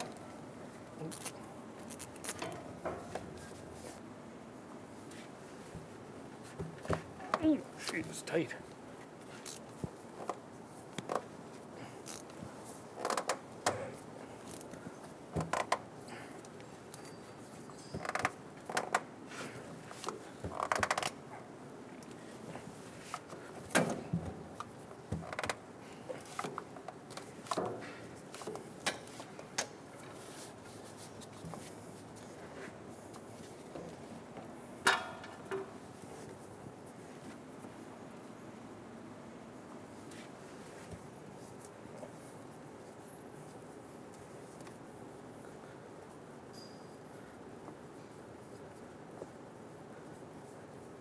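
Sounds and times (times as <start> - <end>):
metallic clicks and knocks: 34.8 - 35.9.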